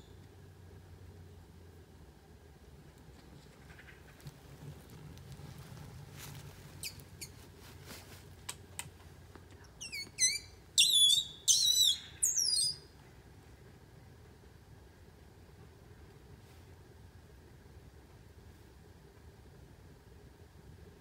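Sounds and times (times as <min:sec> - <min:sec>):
bird chirping: 0:09.6 - 0:12.9.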